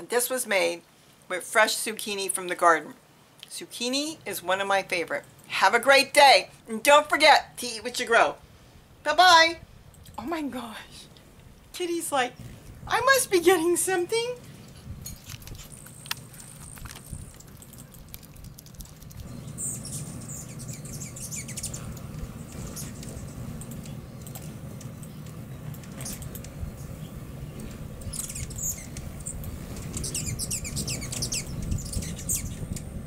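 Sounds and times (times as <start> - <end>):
steady low hum: 8.4 - 33.0
hummingbirds twittering: 11.9 - 33.0.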